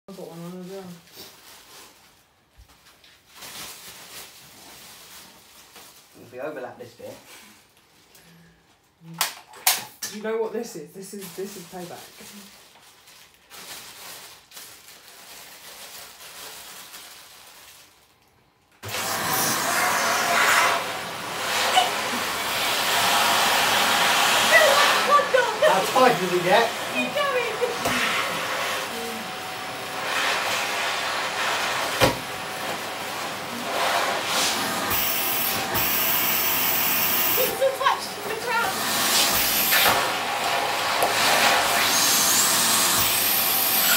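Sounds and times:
plastic bag rustling: 0.4 - 6.6, 11.0 - 18.5, 24.5 - 27.8
vacuum cleaner running: 18.8 - 43.9.

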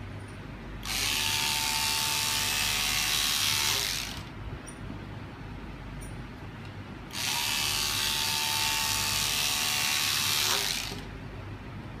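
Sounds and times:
electric scissors buzzing: 0.8 - 4.3, 7.1 - 11.1.

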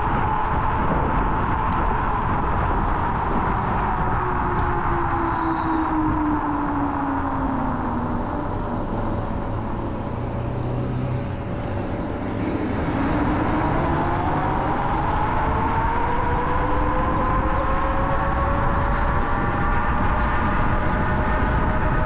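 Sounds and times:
wind rushing on microphone: 0.0 - 22.0.

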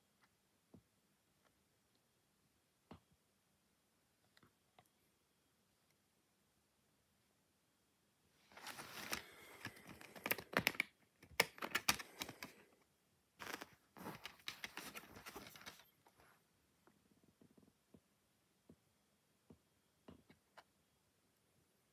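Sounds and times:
plastic disc case clicking: 8.7 - 12.6.

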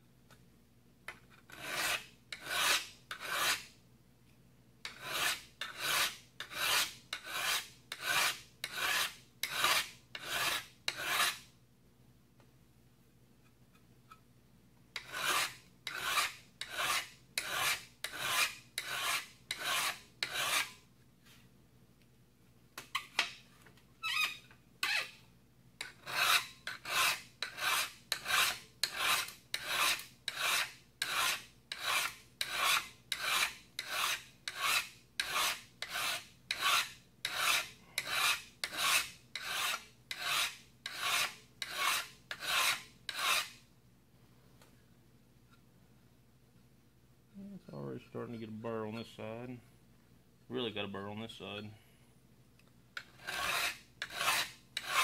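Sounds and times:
hand file rasping on steel: 1.5 - 3.7, 4.9 - 11.4, 15.0 - 20.8, 25.8 - 43.6, 53.0 - 55.0.

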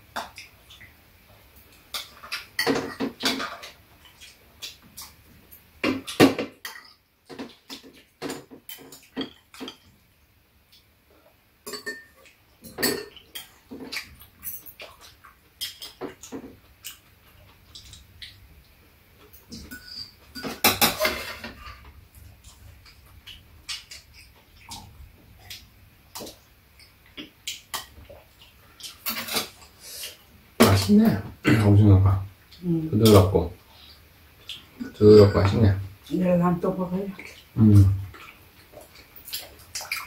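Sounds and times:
utensils clinking against bowls: 11.7 - 14.8, 19.3 - 21.8.

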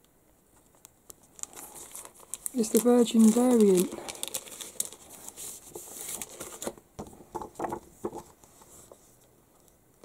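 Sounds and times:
faint handling sounds: 0.3 - 10.0
plastic bag crinkling: 1.2 - 6.8.

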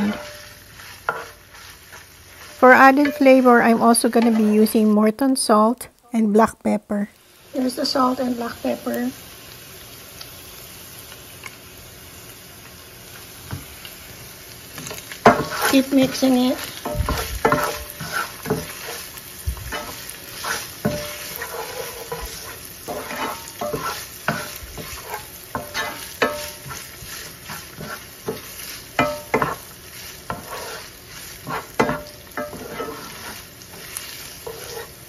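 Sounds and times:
wooden spatula scraping pan: 0.0 - 4.8, 14.8 - 35.0
meat and onion sizzling in oil: 0.0 - 35.0.

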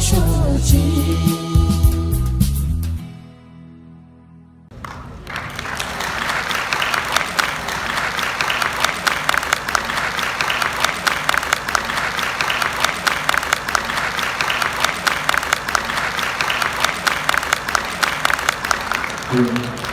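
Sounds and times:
large audience applauding: 4.7 - 19.9.

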